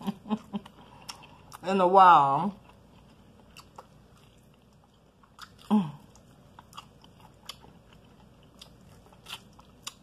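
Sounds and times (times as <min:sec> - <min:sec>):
chewing crispy chicken: 0:02.4 - 0:10.0.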